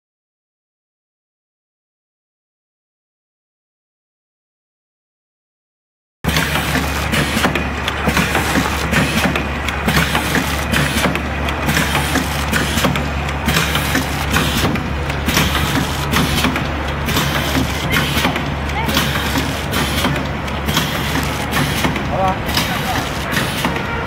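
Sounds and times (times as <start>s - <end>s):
machine motor hum: 6.3s - 24.0s
mechanical clattering: 6.3s - 24.0s.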